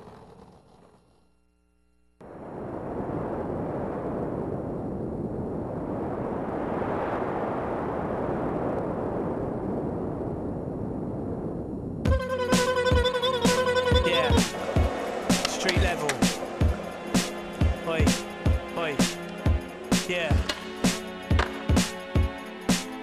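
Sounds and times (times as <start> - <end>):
steady rushing rumbling noise: 2.2 - 12.2, 14.2 - 21.3
music with sharp attack: 12.1 - 23.0.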